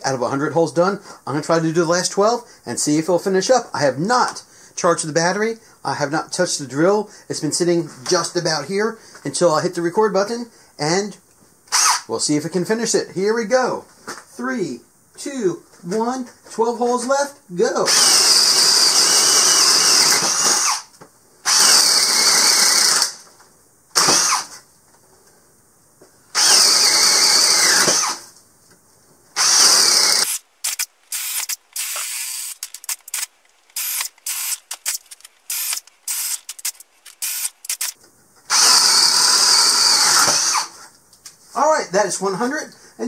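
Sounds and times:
cordless drill boring into wood: 11.7 - 12.1, 17.9 - 23.2, 24.0 - 24.5, 26.4 - 28.2, 29.4 - 40.8.

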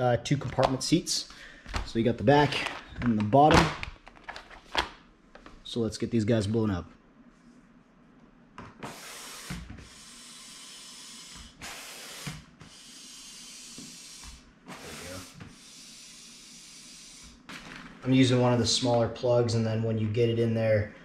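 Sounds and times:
air hissing through hose: 8.9 - 17.4
hand air pump strokes: 8.9 - 17.4.

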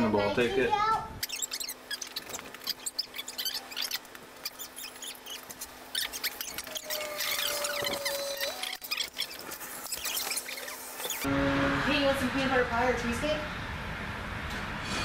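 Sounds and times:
high squeaks: 1.2 - 11.3.

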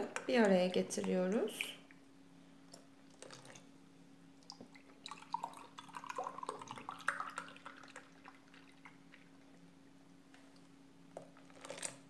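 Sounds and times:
milk pouring into a glass: 3.1 - 3.7, 4.5 - 9.4, 11.2 - 12.0.

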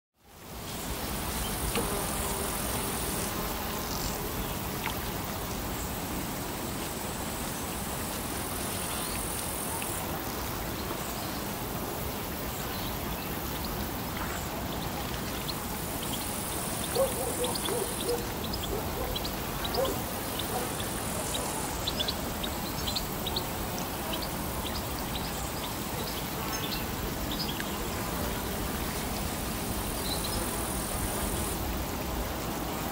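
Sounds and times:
steady rushing hiss: 0.2 - 32.9
wind in trees: 0.2 - 32.9
water washing: 13.3 - 24.6.

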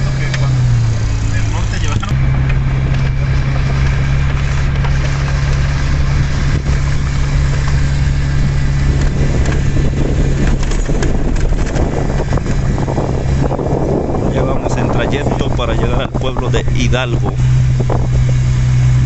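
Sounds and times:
tyres on gravel road: 0.0 - 19.0
vehicle engine running: 0.0 - 19.0
rattles and knocks: 2.4 - 13.6.

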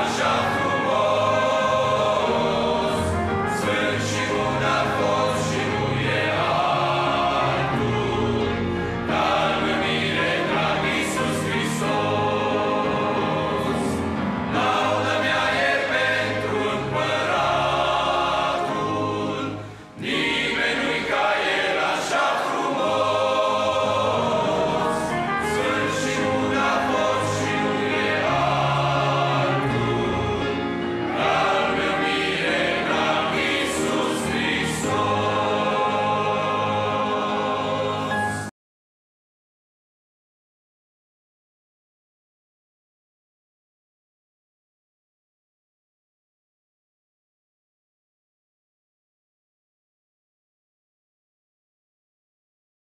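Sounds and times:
instrumental accompaniment: 0.0 - 38.5
men's choir singing a hymn: 0.0 - 38.5.

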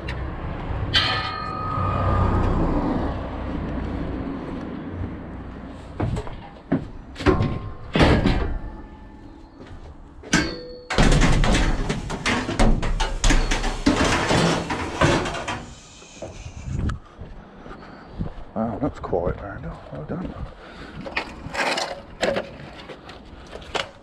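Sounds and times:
ringing metal clang: 0.9 - 2.6, 7.3 - 9.5, 10.3 - 11.8.

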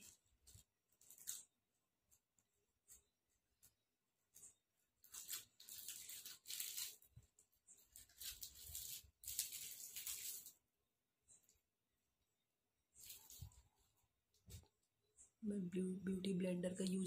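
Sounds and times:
soft rustling and rubbing: 13.0 - 14.8.

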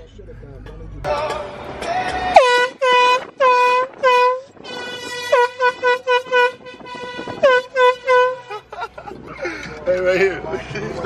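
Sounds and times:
air horn blasts: 2.3 - 8.7.

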